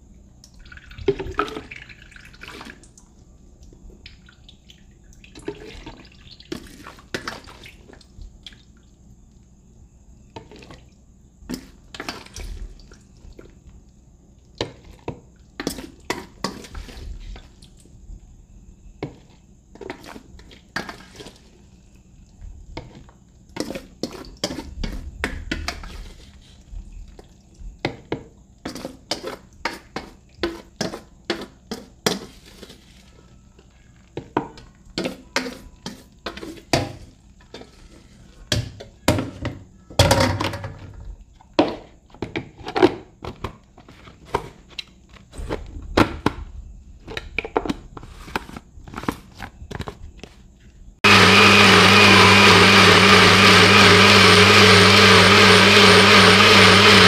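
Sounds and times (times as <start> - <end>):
blender motor running: 51.0 - 57.0.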